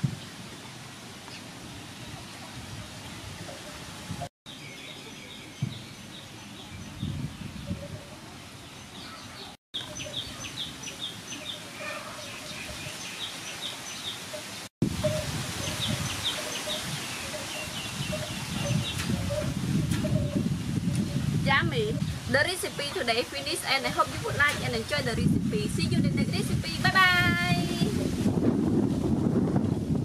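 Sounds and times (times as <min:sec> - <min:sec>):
small birds chirping: 0:08.6 - 0:14.7, 0:15.6 - 0:20.4
outdoor hiss: 0:12.8 - 0:18.6.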